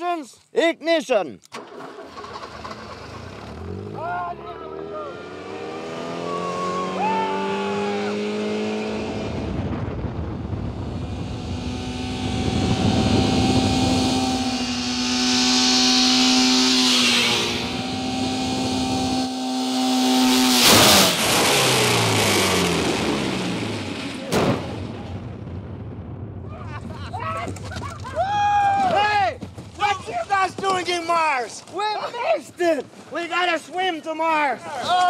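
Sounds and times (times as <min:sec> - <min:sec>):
car engine revving: 0:01.6 - 0:24.3
falling tones: 0:11.4 - 0:20.6
loud crash: 0:20.5 - 0:22.0, 0:24.1 - 0:26.5
tyres on gravel: 0:27.2 - 0:35.0.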